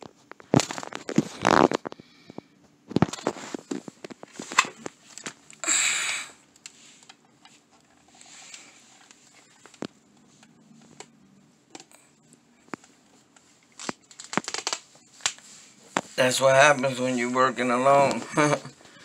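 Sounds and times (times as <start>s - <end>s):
plastic package crinkling: 13.7s - 16.1s.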